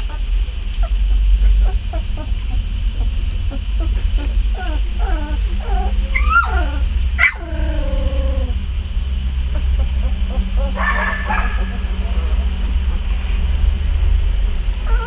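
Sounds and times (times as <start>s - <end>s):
puppies whimpering and yipping: 0.0s - 8.7s, 9.3s - 13.3s, 14.8s - 15.0s
steady low hum: 0.0s - 15.0s.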